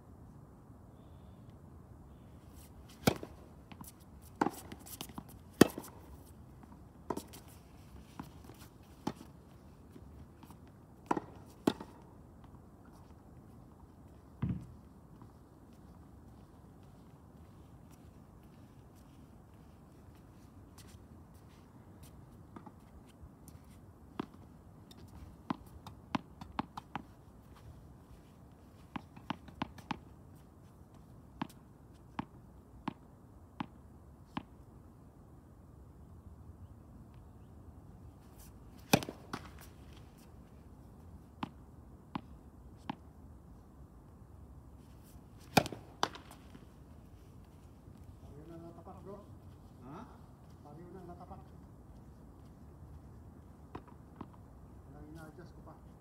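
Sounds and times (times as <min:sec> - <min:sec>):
tennis balls struck by rackets: 0:02.9 - 0:07.4, 0:11.0 - 0:12.0, 0:14.4 - 0:14.8, 0:38.7 - 0:39.8, 0:45.4 - 0:46.8
tennis balls bouncing on court: 0:03.0 - 0:07.4, 0:11.0 - 0:12.0, 0:14.4 - 0:15.3, 0:28.9 - 0:30.1, 0:32.2 - 0:34.5, 0:38.8 - 0:39.8, 0:45.4 - 0:46.6, 0:53.7 - 0:54.4.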